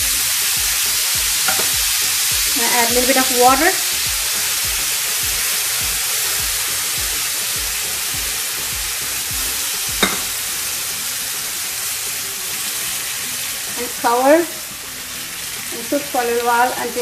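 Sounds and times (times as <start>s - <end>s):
meat and onions sizzling in a pan: 0.0s - 17.0s.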